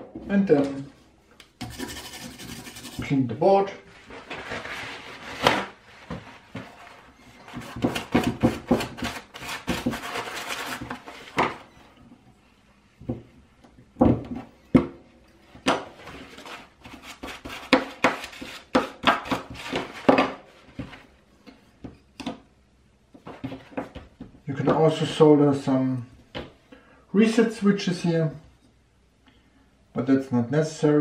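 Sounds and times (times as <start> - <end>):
brush scrubbing circuit board: 1.6 - 3.1.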